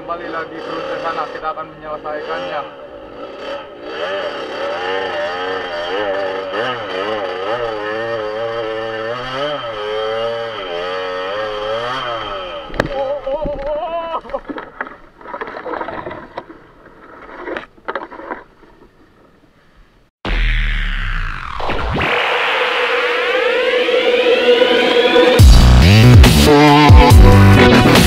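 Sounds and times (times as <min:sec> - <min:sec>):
motorcycle engine revving: 0:00.0 - 0:13.4, 0:20.3 - 0:28.0
motorcycle falling knock: 0:12.7 - 0:14.9.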